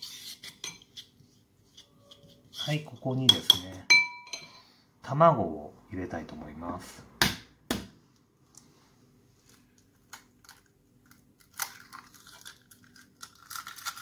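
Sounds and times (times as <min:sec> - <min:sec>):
eggshell crackling: 0:09.6 - 0:14.0.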